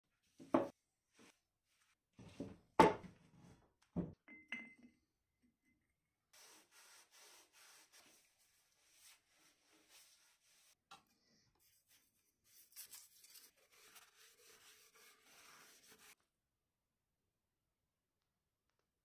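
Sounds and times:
cloth rubbing on steel bar: 6.4 - 10.8, 12.6 - 16.2.

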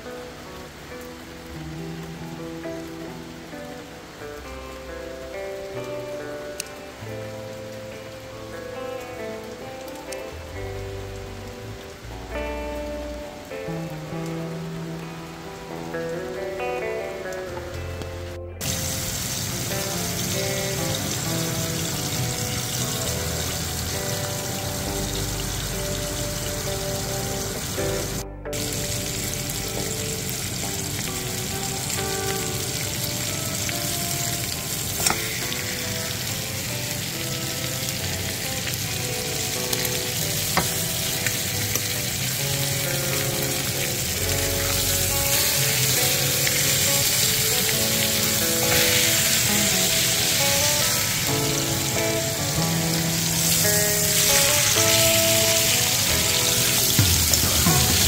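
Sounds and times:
background music: 0.0 - 58.0
pork chops sizzling in skillet: 18.6 - 58.0.

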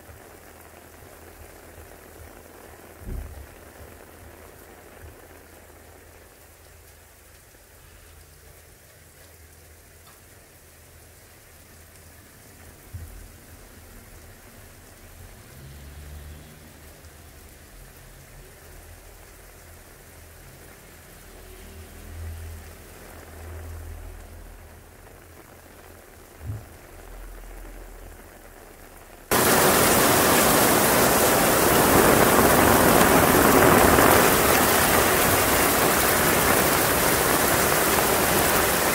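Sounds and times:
heavy rain pouring: 0.0 - 38.9
soft thumps: 3.0 - 3.5, 26.4 - 26.8
faint low rumbles: 22.2 - 29.3.

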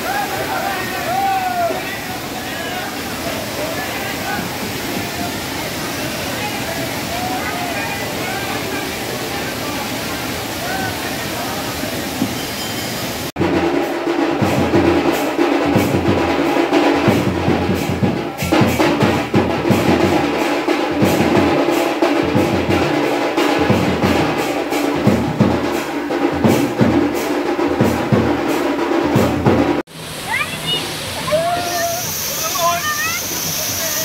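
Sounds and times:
waterfall rushing: 0.0 - 34.0
loud music with heavy drum beat: 13.4 - 29.9.

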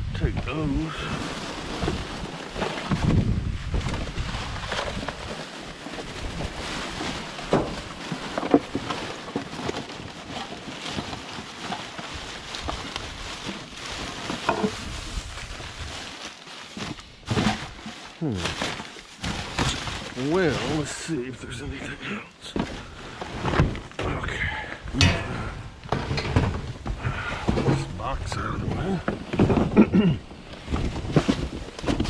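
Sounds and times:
rubbish rustling: 0.5 - 32.0
wind buffeting microphone: 2.9 - 5.1.

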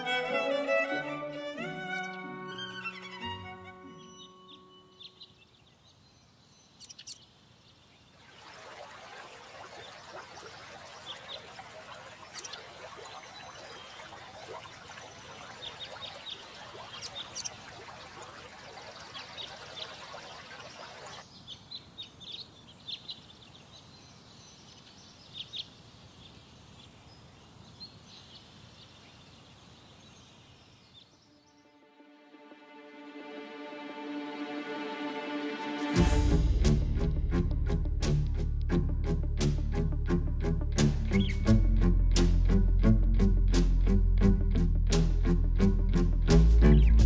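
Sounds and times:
birds chirping: 1.6 - 31.8, 41.0 - 41.8.

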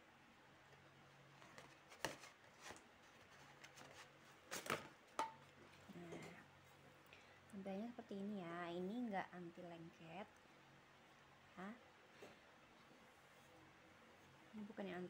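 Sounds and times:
cardboard rustling: 1.3 - 5.0.

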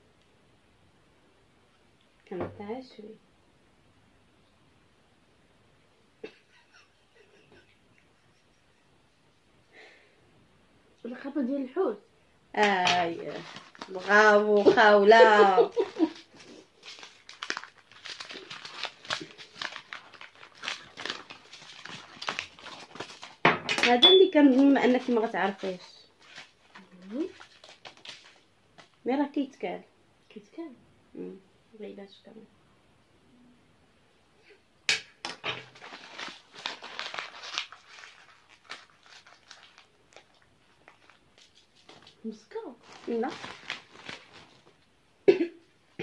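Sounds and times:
plastic bag crinkling: 12.6 - 29.0, 35.4 - 44.9.

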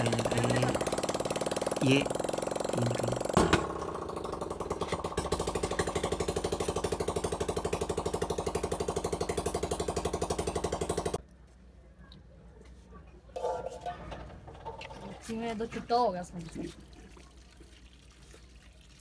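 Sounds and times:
motorcycle engine idling: 0.0 - 11.2.

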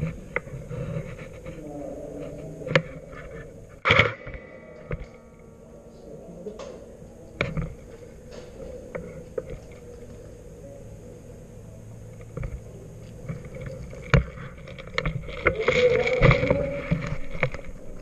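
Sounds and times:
rustling: 13.0 - 18.0.

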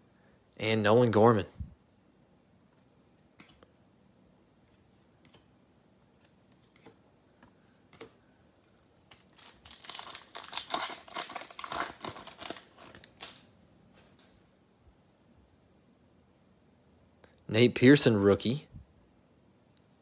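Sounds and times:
foil wrapper crinkling and tearing: 9.1 - 13.5.

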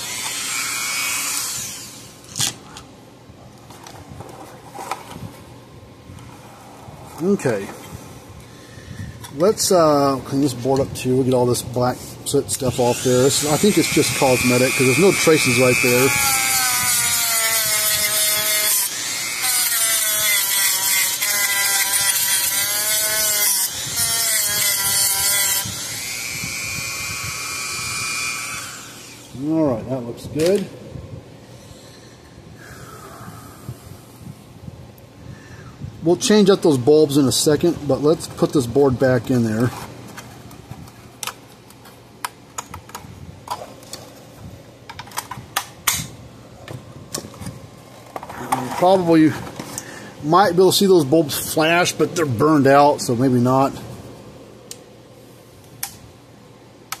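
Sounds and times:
rotary tool motor whine: 0.0 - 2.4, 12.7 - 29.4.

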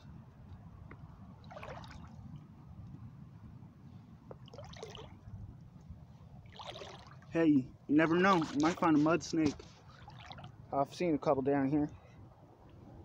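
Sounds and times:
boots splashing in shallow water: 1.4 - 2.2, 4.4 - 5.2, 6.4 - 7.3, 8.0 - 10.6.

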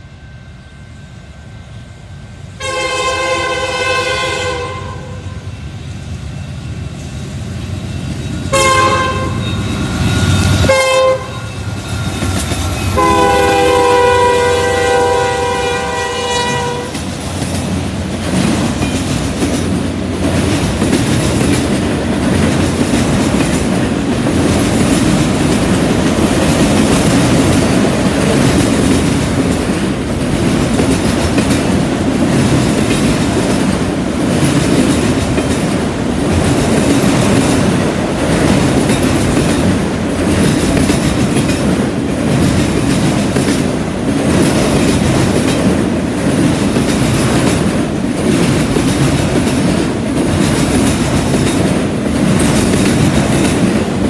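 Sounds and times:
freight train cars rolling past: 0.0 - 54.0
locomotive air horn: 2.6 - 5.5, 8.5 - 10.0, 10.6 - 11.8, 12.9 - 17.0.

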